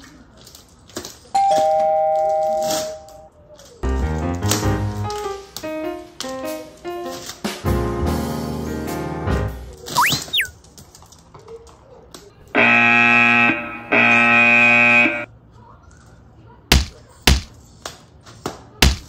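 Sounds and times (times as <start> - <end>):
slide whistle: 10.0 - 10.5
wrong-answer buzzer: 12.6 - 15.3.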